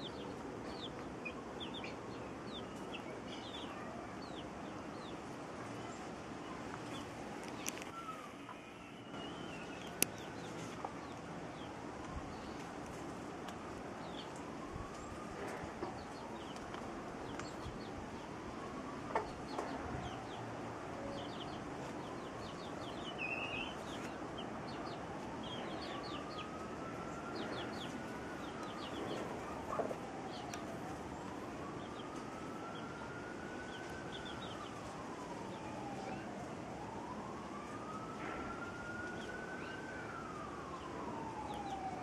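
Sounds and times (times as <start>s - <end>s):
chicks peeping: 0.0s - 11.7s, 19.1s - 20.4s, 21.1s - 26.6s, 27.3s - 30.7s, 33.7s - 34.7s
distant siren wailing: 0.0s - 42.0s.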